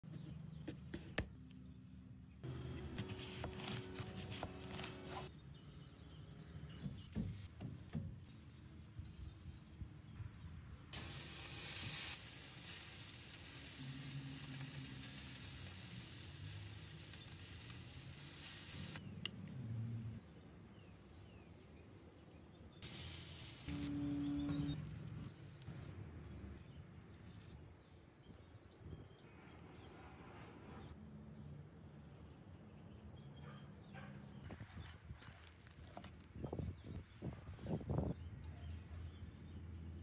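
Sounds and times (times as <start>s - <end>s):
burger patties sizzling on grill: 11.0s - 19.0s, 22.8s - 24.8s.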